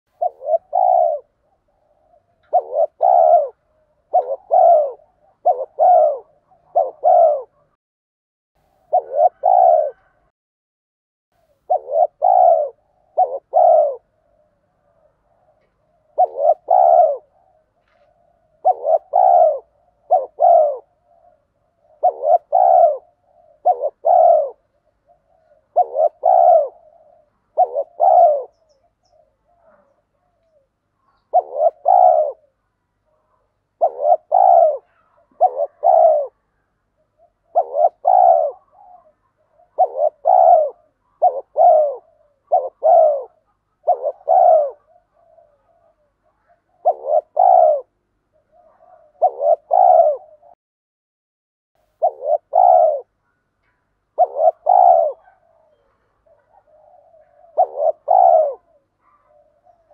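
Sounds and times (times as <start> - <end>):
dove cooing: 0.1 - 7.8, 8.7 - 10.3, 11.4 - 50.6, 51.9 - 53.4, 54.1 - 59.9.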